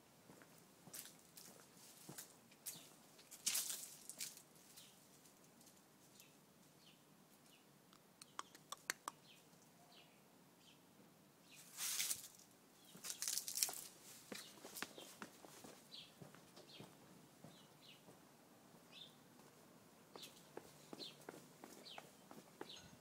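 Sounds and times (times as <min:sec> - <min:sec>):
dry leaves crunching underfoot: 0:00.9 - 0:05.7, 0:11.6 - 0:15.2.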